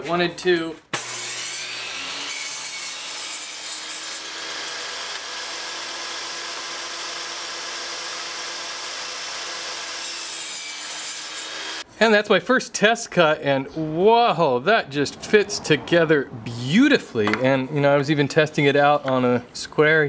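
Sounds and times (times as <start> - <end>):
table saw cutting wood: 0.9 - 11.9.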